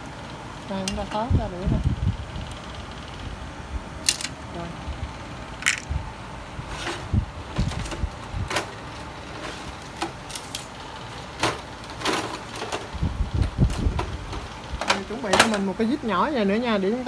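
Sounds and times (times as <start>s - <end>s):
plastic parts clicking and rattling: 4.0s - 4.4s, 5.6s - 5.9s, 9.4s - 15.7s.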